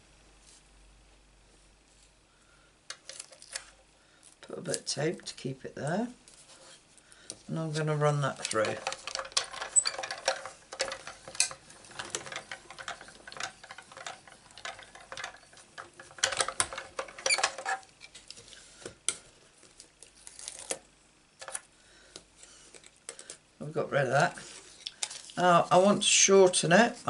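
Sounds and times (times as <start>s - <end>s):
die-cutting machine clicking and clattering: 8.3s - 17.8s.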